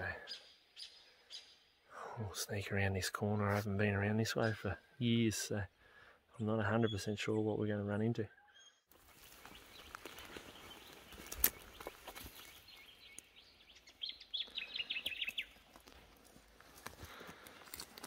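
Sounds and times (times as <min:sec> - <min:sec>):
bird chirping: 0:00.0 - 0:01.9, 0:06.4 - 0:15.8
footsteps through grass and sticks: 0:08.9 - 0:13.6, 0:14.3 - 0:18.0.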